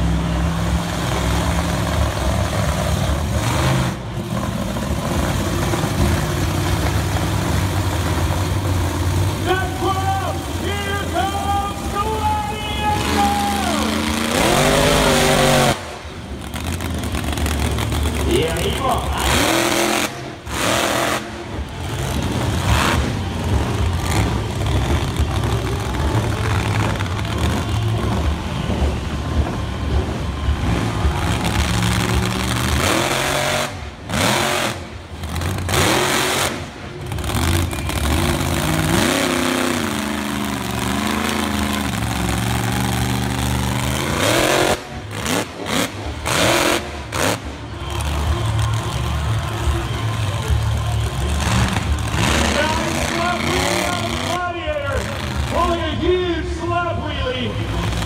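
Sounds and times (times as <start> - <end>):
monster truck engine revving: 0.0 - 58.0.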